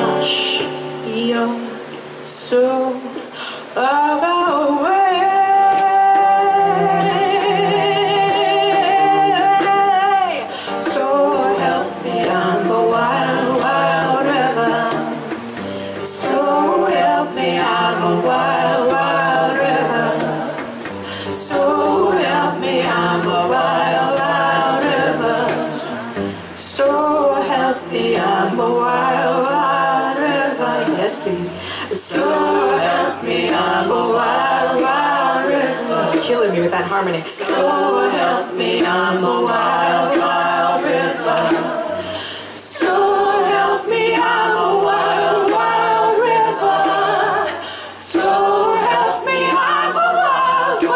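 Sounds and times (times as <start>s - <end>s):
voices singing in harmony: 0.0s - 50.9s
hand drum strokes: 5.7s - 31.3s.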